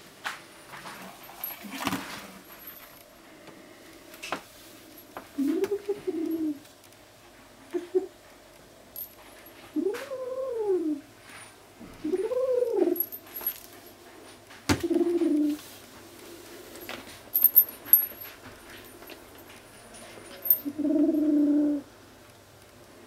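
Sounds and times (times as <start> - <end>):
kitten hooting growls: 9.8 - 11.0, 12.0 - 13.0, 20.7 - 21.9.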